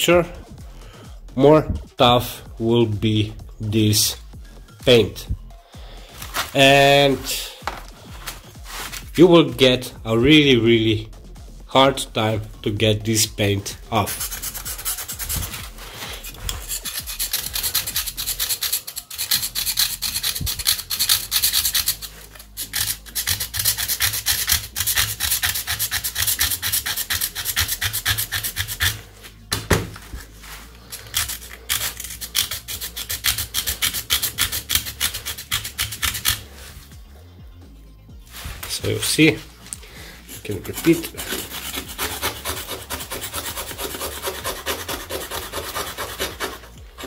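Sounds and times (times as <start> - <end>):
screwdriver scraping clay pot: 13.9 - 29.2, 30.9 - 36.5, 40.2 - 47.0.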